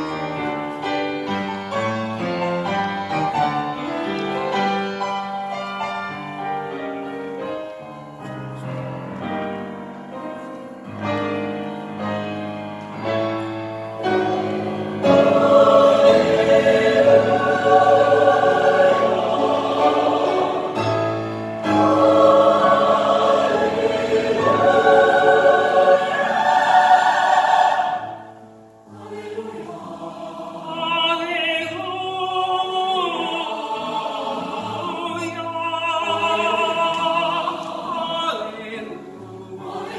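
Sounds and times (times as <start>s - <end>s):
mixed choir singing: 14.0s - 39.9s.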